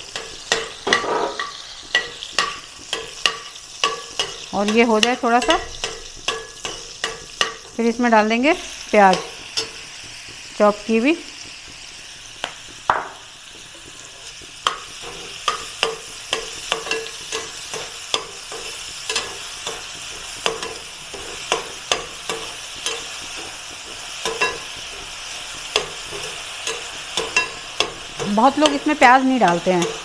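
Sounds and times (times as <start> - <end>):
onions sizzling in a pan: 0.0 - 30.0
spoon clicking against a pan: 0.1 - 7.8, 14.6 - 30.0.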